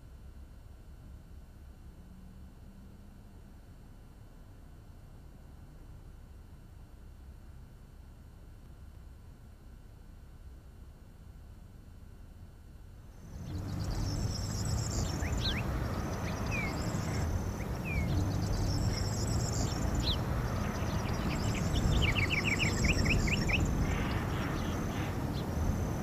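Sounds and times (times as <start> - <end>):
birds chirping and whistling: 13.4 - 25.6.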